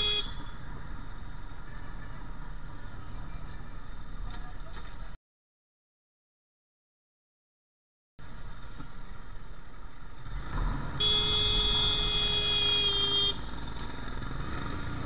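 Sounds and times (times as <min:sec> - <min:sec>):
vehicle horn blast: 0:00.0 - 0:00.4, 0:11.0 - 0:13.4
street traffic: 0:00.0 - 0:05.2, 0:08.2 - 0:15.0.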